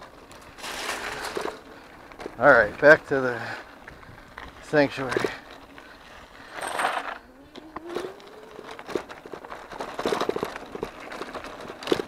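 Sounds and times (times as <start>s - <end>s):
bike rattling over rough trail: 0.0s - 12.0s
electric bike motor whine: 7.2s - 9.1s.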